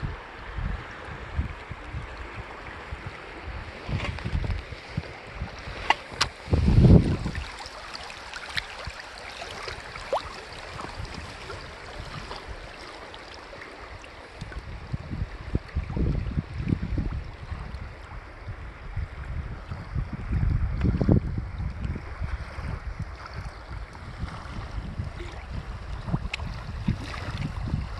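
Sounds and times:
wind rumbling on microphone: 0.0 - 27.9
river water rushing: 5.0 - 14.8.

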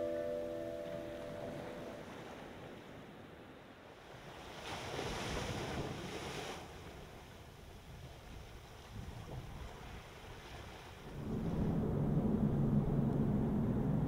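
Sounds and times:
ringing tones: 0.0 - 2.1
ocean surf washing ashore: 0.0 - 14.0.

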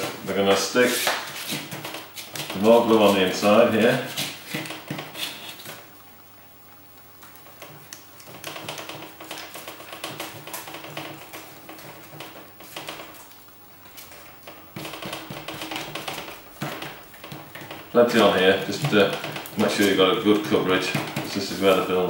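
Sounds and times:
applicator scraping cardboard: 0.0 - 5.8, 14.0 - 22.0.

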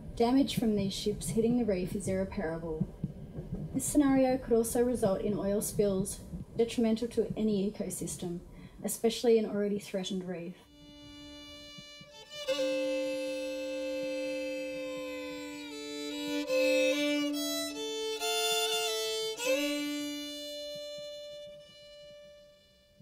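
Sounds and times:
low drone note: 10.7 - 22.8
violin playing slow held notes: 10.7 - 23.0.

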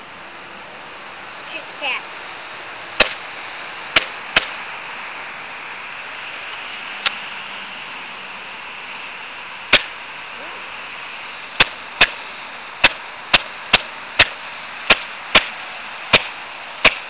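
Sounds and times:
steady hiss: 0.0 - 17.0
airsoft pistol shots: 3.0 - 3.2, 3.9 - 4.6, 9.7 - 10.0, 11.6 - 12.2, 12.8 - 17.0.

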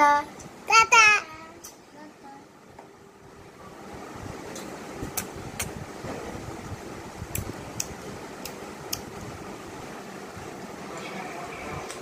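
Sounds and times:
steady background hum: 0.0 - 12.0
child lip-smacking kisses: 5.2 - 5.8.

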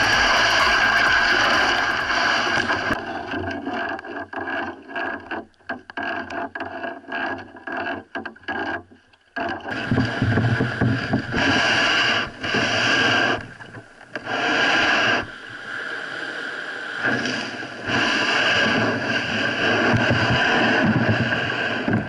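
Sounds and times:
surf washing against bow: 0.0 - 5.4, 9.7 - 22.0
water rushing along kayak hull: 0.0 - 22.0
hull scraping over sand: 9.7 - 22.0.

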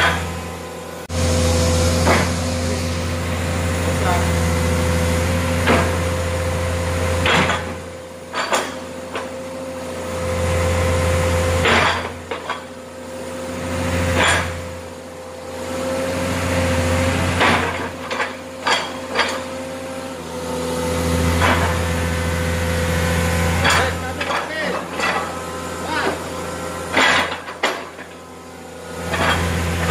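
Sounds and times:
excavator diesel engine: 0.0 - 29.9
hydraulic whine: 0.0 - 29.9
metallic knocks and clanks: 7.2 - 9.3, 23.6 - 25.4, 26.9 - 28.2.

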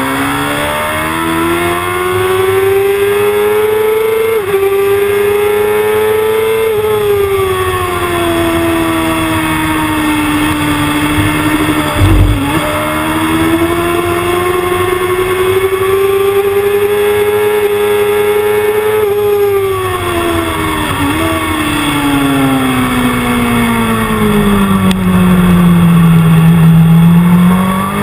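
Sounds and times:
motorcycle engine accelerating: 0.0 - 28.0
short low thump: 11.0 - 13.1.

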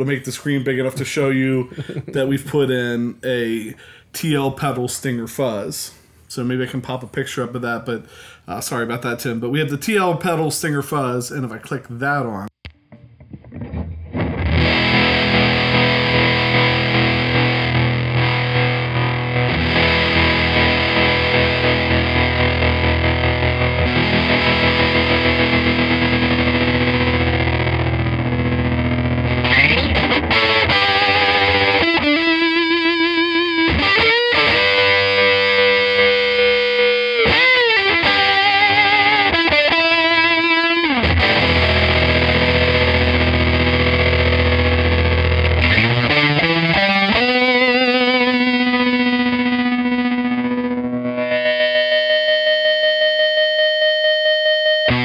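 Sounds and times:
fuzzed electric guitar with tremolo: 12.6 - 55.0.

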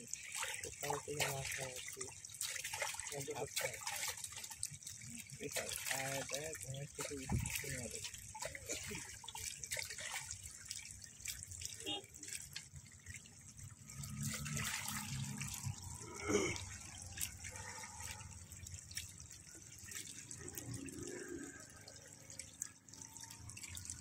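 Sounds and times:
small splashes: 0.0 - 24.0
water trickling and splashing: 0.0 - 24.0.

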